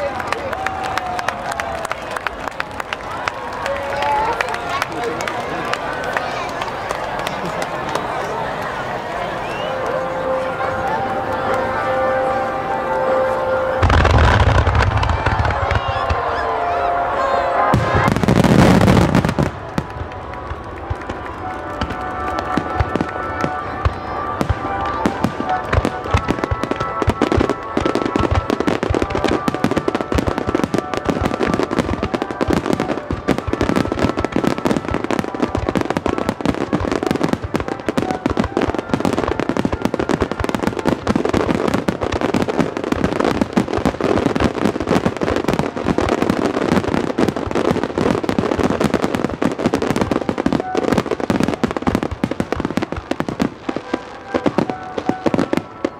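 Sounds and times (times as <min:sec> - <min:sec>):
fireworks bursting and crackling: 0:13.1 - 0:55.9.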